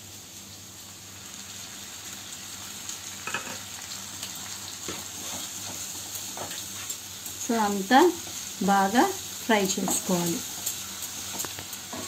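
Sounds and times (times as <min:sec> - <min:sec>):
vegetables sizzling in oil: 0:00.0 - 0:12.0
spatula scraping pan: 0:04.9 - 0:07.0.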